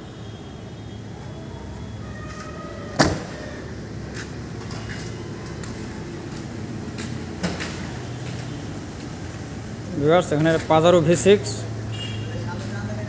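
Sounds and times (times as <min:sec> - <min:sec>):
car door slamming: 0:03.0 - 0:03.4.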